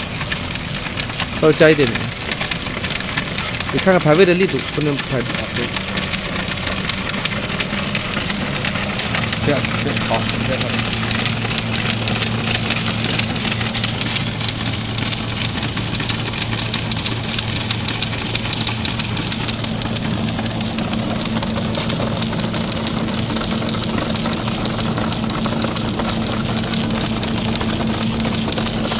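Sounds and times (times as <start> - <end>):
machine motor hum: 0.0 - 28.9
fast ticking of die-cutting: 0.2 - 28.9.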